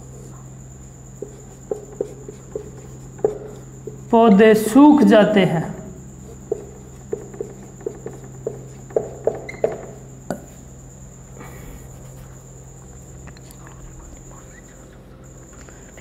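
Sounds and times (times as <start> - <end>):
low electrical hum: 0.0 - 16.0
marker tapping on whiteboard: 1.2 - 4.5, 6.2 - 10.6.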